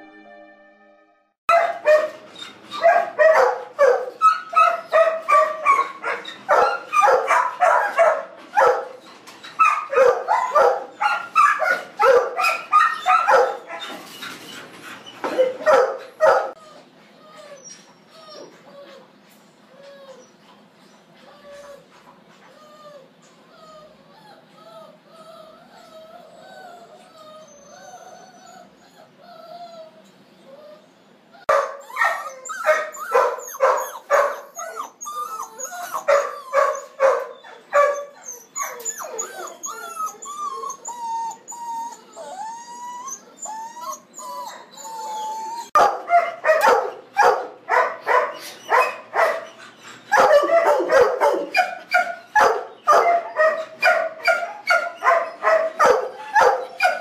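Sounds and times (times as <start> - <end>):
dogs barking: 1.5 - 9.0, 9.6 - 14.0, 15.2 - 16.6, 31.5 - 34.9, 35.9 - 39.2, 45.8 - 57.0
dogs whining: 1.5 - 57.0.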